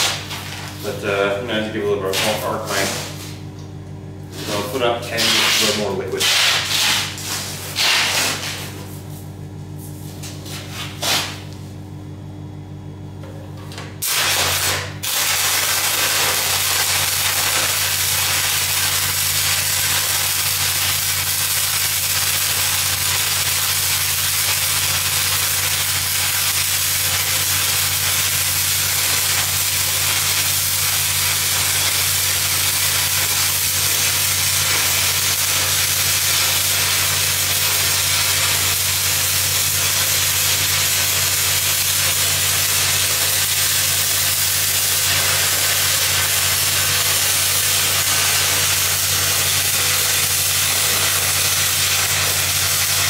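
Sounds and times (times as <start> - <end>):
welding arc crackling sizzle: 0.0 - 3.5, 4.2 - 9.2, 13.7 - 53.0
welder engine humming: 13.2 - 53.0.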